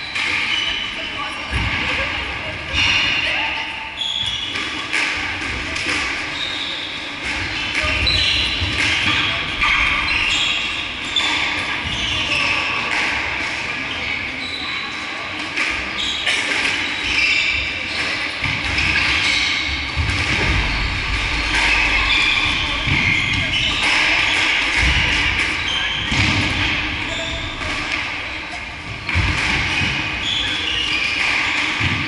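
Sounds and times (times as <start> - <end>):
squash ball hitting rackets and walls: 4.3 - 6.6, 7.2 - 13.8, 15.4 - 32.0.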